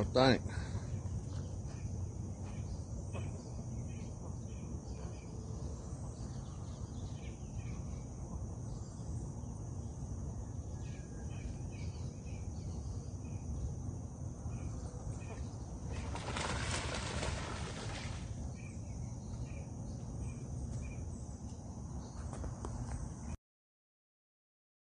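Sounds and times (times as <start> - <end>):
insects droning: 0.0 - 23.4
low steady rumble: 0.0 - 23.4.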